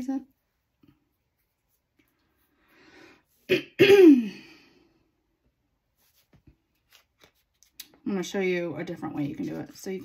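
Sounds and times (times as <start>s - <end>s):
person breathing: 2.4s - 3.4s
person clearing throat: 3.5s - 4.5s.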